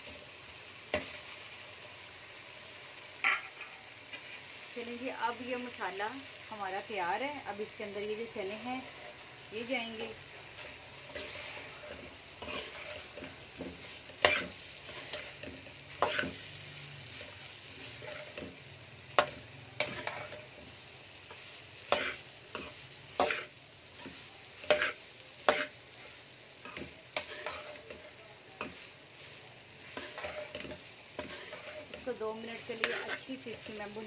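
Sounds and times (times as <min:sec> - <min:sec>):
food sizzling: 0:00.0 - 0:34.0
metal spoon scraping a pan: 0:08.8 - 0:34.0.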